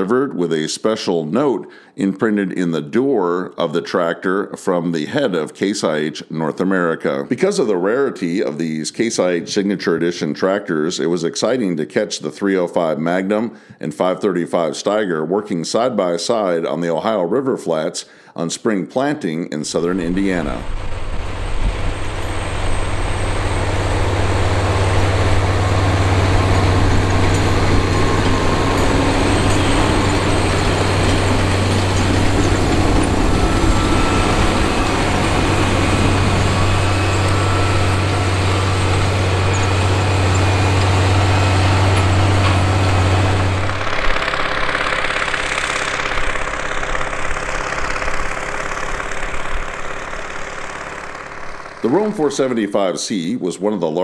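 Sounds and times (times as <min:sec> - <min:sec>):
tractor diesel engine drone: 0:19.6 - 0:53.3
tractor diesel pulling a disc: 0:19.7 - 0:52.6.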